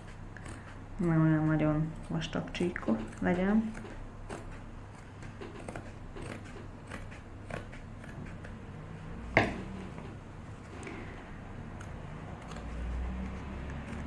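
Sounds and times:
scissors snipping leather: 0:00.0 - 0:01.2, 0:02.0 - 0:08.7, 0:11.7 - 0:14.0.

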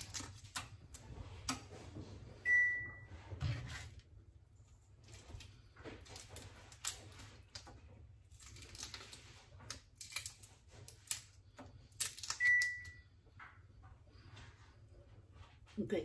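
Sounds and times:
prawn shells crackling when peeled: 0:00.0 - 0:01.6, 0:05.0 - 0:12.8.

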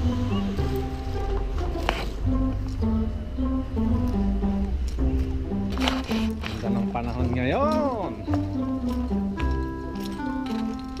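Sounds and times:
melody of held notes: 0:00.0 - 0:05.8
steady bass line: 0:00.0 - 0:11.0.

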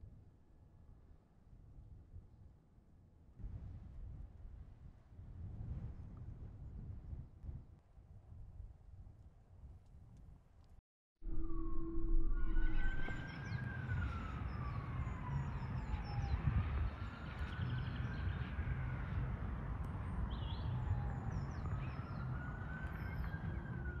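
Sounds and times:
low rumble: 0:11.2 - 0:15.3
wailing siren: 0:11.2 - 0:24.0.

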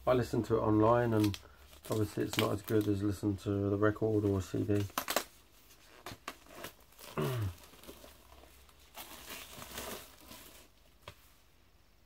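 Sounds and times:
plastic wrap crinkling and tearing: 0:00.9 - 0:03.2, 0:04.1 - 0:11.0.

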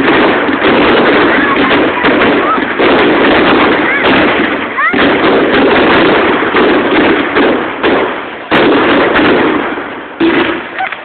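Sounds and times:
fireworks bangs and crackle: 0:00.0 - 0:11.0.

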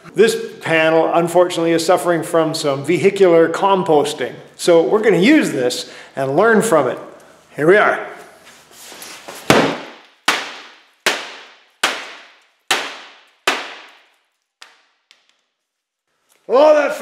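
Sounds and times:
mallet striking metal car hood: 0:09.5 - 0:14.0.

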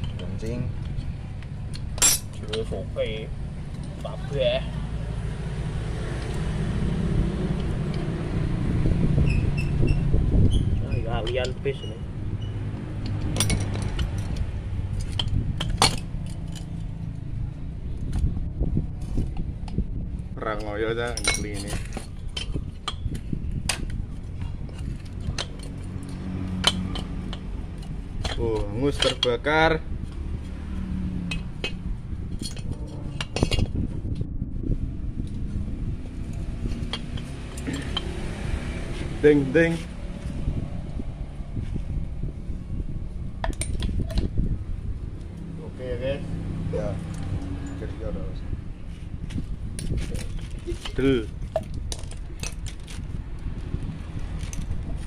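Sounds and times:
metal parts clinking on concrete: 0:01.7 - 0:02.7, 0:10.9 - 0:17.0, 0:20.6 - 0:23.9, 0:24.6 - 0:29.5, 0:32.4 - 0:33.8, 0:36.3 - 0:38.2, 0:43.4 - 0:44.4, 0:49.8 - 0:53.1
steady low hum: 0:31.4 - 0:50.0.

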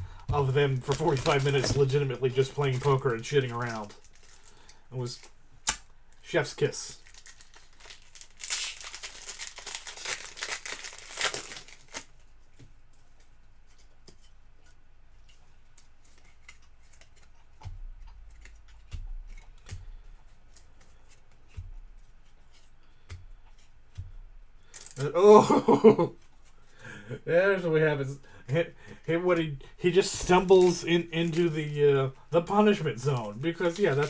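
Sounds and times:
wrapper tearing and crinkling: 0:00.4 - 0:05.4, 0:06.9 - 0:12.2, 0:24.7 - 0:25.2, 0:29.9 - 0:34.0
cards being handled: 0:00.4 - 0:05.8, 0:07.0 - 0:25.1, 0:28.0 - 0:34.0.

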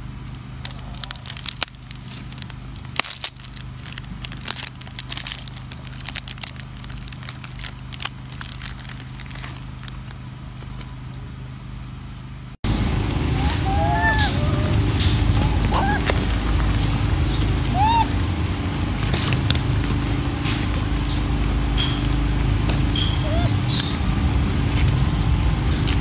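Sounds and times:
low steady hum: 0:00.0 - 0:26.0
plastic wrapper crinkling: 0:00.6 - 0:10.9.

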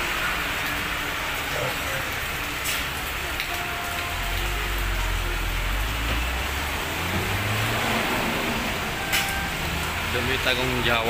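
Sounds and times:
steady rain hiss: 0:00.0 - 0:11.0.

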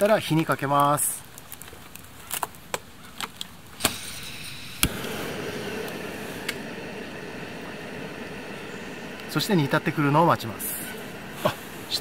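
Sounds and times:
gas burner hissing: 0:03.7 - 0:12.0
stove igniter clicks: 0:03.8 - 0:09.8.

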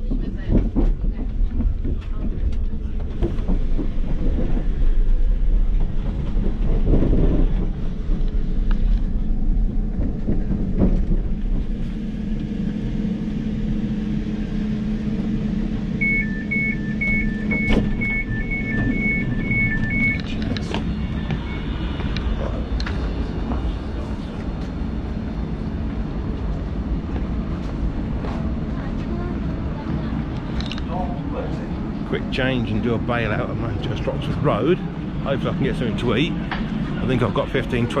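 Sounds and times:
train rumble and hum: 0:00.0 - 0:38.0
door alert beeps: 0:16.0 - 0:20.3
train doors clunking open: 0:16.5 - 0:24.4.

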